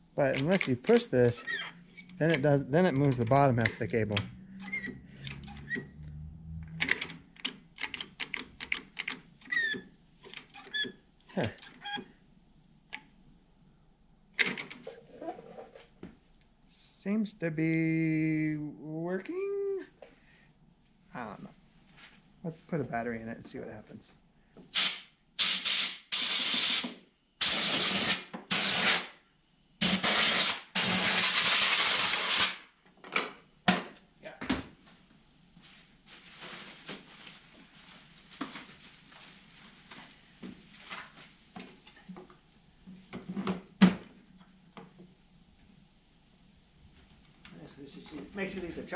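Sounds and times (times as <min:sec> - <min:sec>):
air blow gun hissing bursts: 0:24.7 - 0:29.2, 0:29.8 - 0:32.6.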